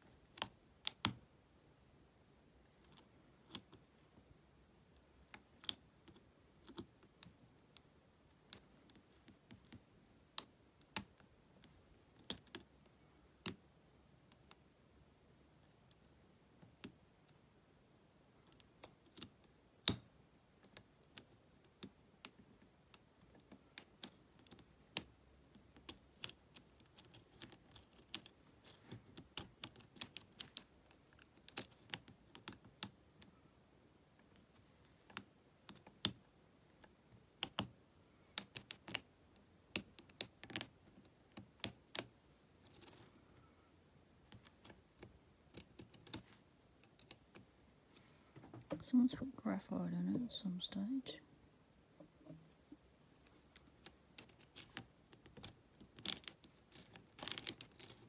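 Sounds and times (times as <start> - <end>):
lock pick clicking in padlock: 53.6 - 58.0.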